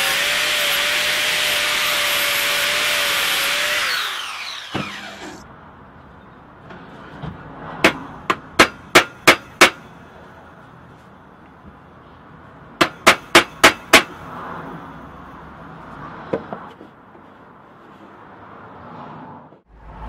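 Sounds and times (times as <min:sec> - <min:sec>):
angle grinder grinding metal: 0:00.0 - 0:05.4.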